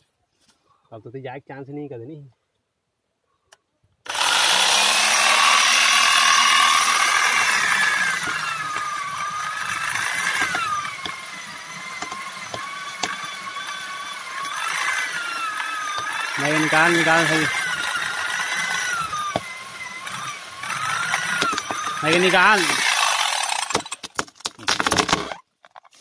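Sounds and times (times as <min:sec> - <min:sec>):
electric chainsaw cutting wood: 0:04.0 - 0:24.1, 0:24.7 - 0:25.4.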